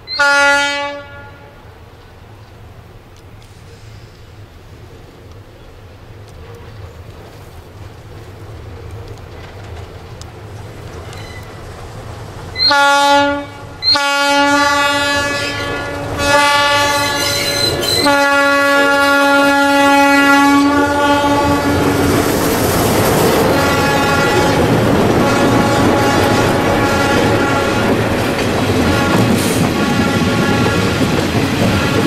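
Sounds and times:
diesel locomotive engines: 0.0s - 32.0s
locomotive air horn blasts: 0.1s - 1.6s, 12.6s - 22.1s, 23.6s - 28.2s, 28.8s - 31.0s
train wheels clicking over rail joints: 2.0s - 12.7s, 15.8s - 19.5s, 21.4s - 32.0s.

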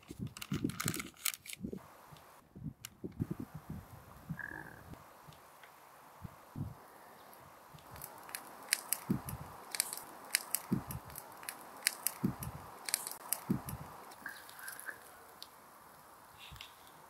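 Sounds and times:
wood fire crackling: 0.0s - 17.0s
low dull thumps: 9.1s - 9.5s, 10.7s - 11.1s, 12.2s - 12.6s, 13.4s - 13.9s.

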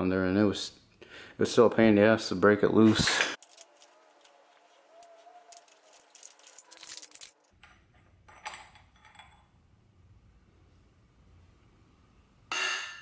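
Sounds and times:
metal tools clinking: 3.4s - 9.6s.

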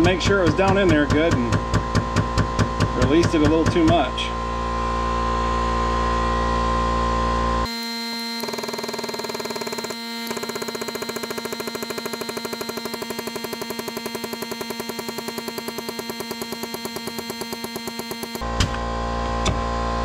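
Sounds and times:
crimping machine pulsing drone: 7.6s - 20.0s.

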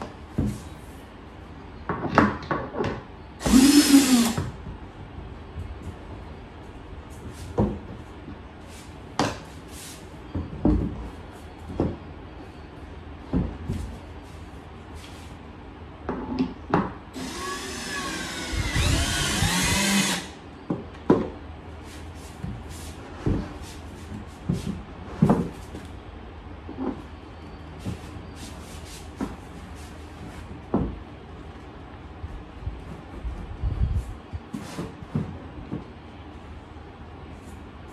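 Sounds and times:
cordless drill whining: 3.4s - 4.4s, 17.2s - 20.4s.

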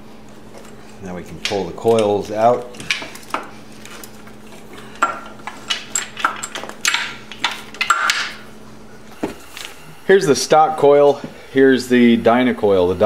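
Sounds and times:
light clinks and knocks of parts: 0.3s - 8.4s.

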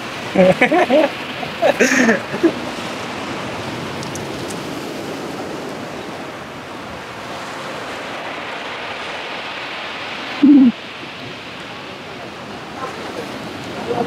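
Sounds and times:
ocean surf on rocks: 0.0s - 14.0s.

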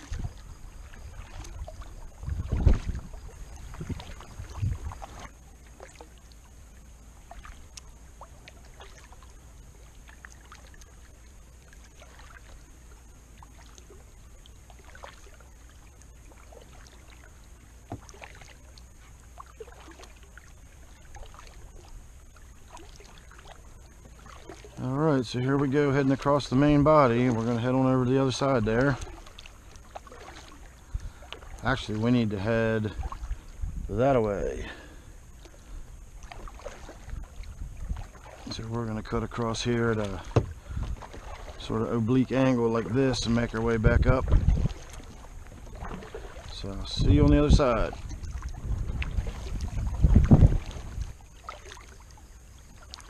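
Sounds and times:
paddle splashing and dripping: 0.0s - 53.0s
low thumps: 40.2s - 41.0s.

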